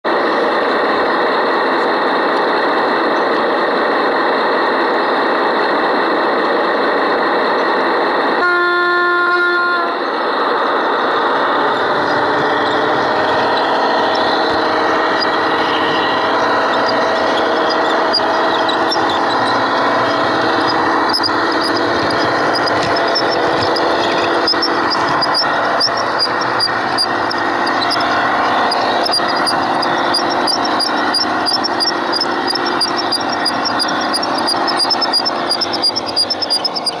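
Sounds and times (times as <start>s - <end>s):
model train running: 0.1s - 37.0s
train horn note: 8.4s - 10.0s
rapid light ticking: 11.8s - 37.0s.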